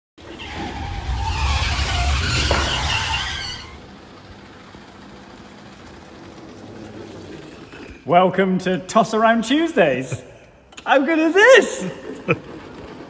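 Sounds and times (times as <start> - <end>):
wavering squeal: 0.2 - 3.9
vehicle rumble: 0.2 - 7.7.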